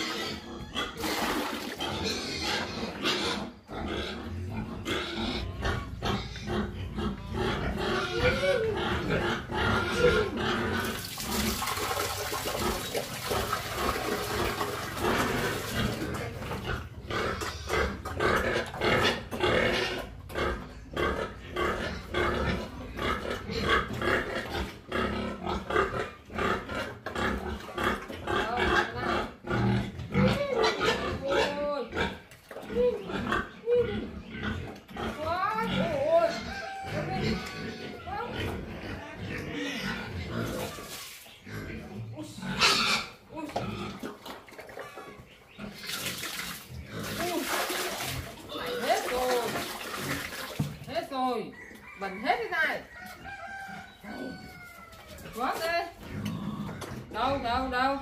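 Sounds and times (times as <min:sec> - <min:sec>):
pigs grunting: 0:00.0 - 0:50.8, 0:53.3 - 0:58.0
wet feed pouring into trough: 0:01.0 - 0:02.0, 0:10.7 - 0:16.4, 0:45.8 - 0:50.9.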